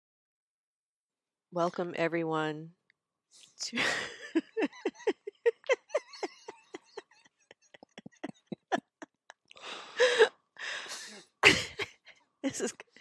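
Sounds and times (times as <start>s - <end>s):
person giggling: 3.8s - 10.3s.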